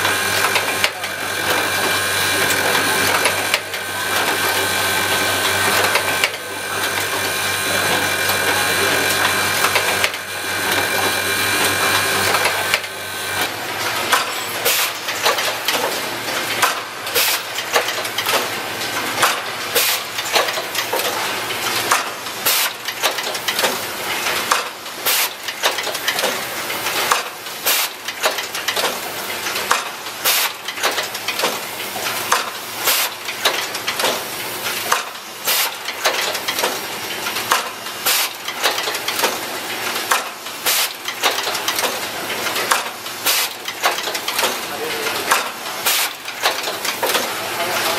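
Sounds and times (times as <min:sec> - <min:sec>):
clatter of mechanical clicks: 0:12.3 - 0:19.5, 0:20.1 - 0:24.8, 0:25.4 - 0:47.9.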